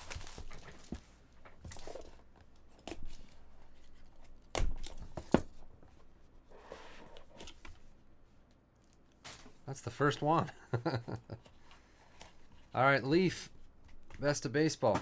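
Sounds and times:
plastic wrap crinkling and tearing: 0.0 - 0.9.

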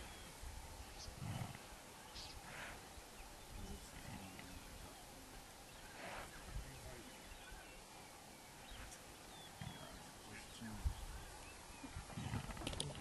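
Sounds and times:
steady low outdoor noise: 0.0 - 13.0
soft breathy sounds: 5.2 - 7.2.

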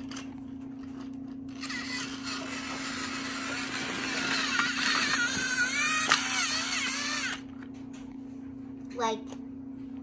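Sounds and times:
whirring with squeaky grinding: 0.0 - 8.1
toy train motor humming: 1.5 - 7.5.

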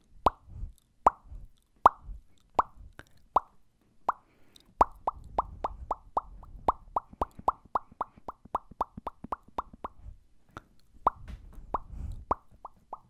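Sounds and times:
mouth pops close to microphone: 0.2 - 13.0.

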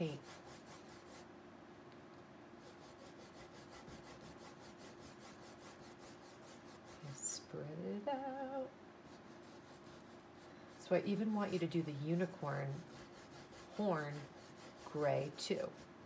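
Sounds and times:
paintbrush scrubbing on canvas: 0.0 - 1.3, 2.6 - 7.4, 9.1 - 16.0
wavering voice sound: 7.0 - 8.7.

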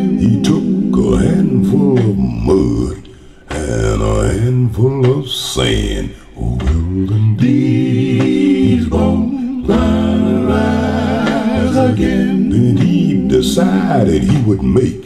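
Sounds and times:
voices singing held notes: 0.0 - 15.0
deep bass: 6.0 - 11.9.

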